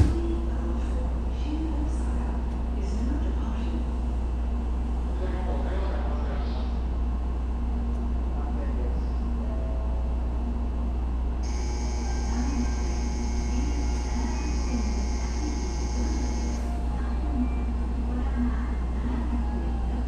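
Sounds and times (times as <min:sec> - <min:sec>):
low rumble beside trains: 0:00.0 - 0:20.0
high-pitched whine: 0:11.4 - 0:16.7.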